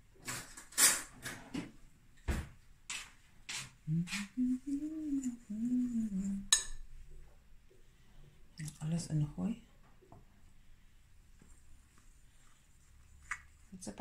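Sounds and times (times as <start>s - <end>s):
person humming: 3.8s - 6.6s.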